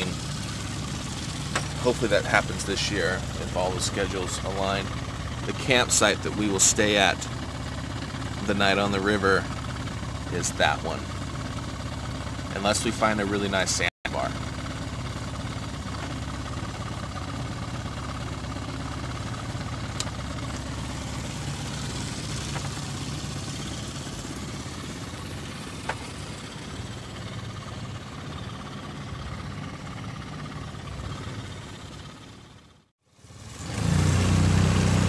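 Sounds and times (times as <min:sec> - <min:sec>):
outboard motor running: 0:00.0 - 0:35.0.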